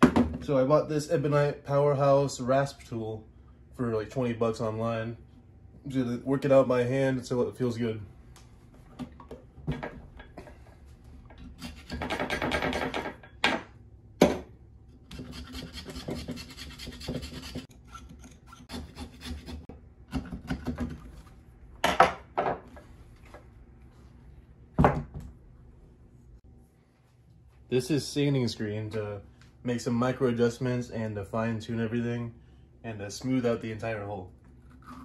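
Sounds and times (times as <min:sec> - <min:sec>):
hand rasp scraping: 0:15.1 - 0:19.7.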